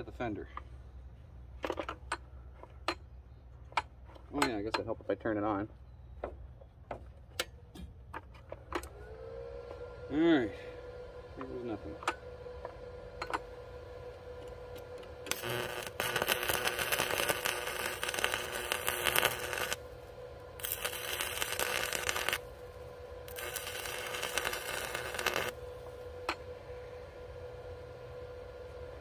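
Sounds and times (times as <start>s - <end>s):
welding arc crackling: 15.2s - 26.0s.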